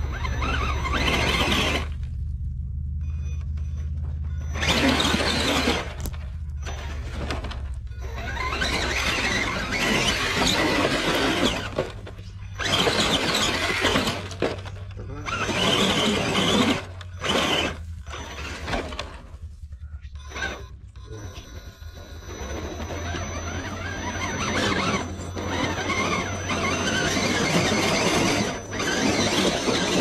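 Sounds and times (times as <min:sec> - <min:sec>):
tyres spinning on loose dirt: 0:00.0 - 0:30.0.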